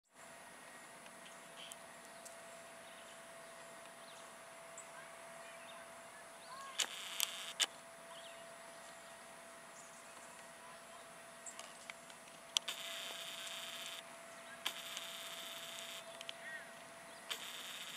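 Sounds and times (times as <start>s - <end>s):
thin steady hum: 0.1s - 17.9s
low hiss: 5.8s - 17.9s
small chirps: 6.6s - 7.7s, 12.6s - 14.0s, 14.6s - 16.5s, 17.2s - 17.9s
sharp clicks: 6.8s - 7.7s, 11.6s - 14.0s, 14.6s - 16.4s, 17.3s - 17.9s.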